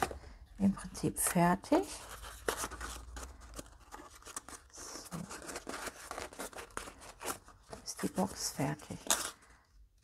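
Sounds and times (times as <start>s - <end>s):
stiff paper rustling and crinkling: 1.8s - 9.6s.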